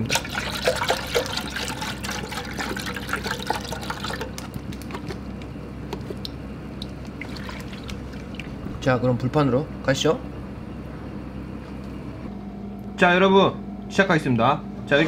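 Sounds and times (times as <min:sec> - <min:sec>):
milk pouring into metal pot: 0:00.0 - 0:04.8, 0:07.2 - 0:08.6
liquid sloshing and dripping: 0:00.0 - 0:05.3, 0:06.0 - 0:08.8.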